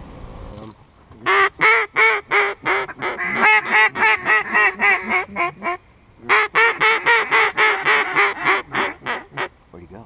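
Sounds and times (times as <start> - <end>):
duck call quacks: 1.2 - 9.5.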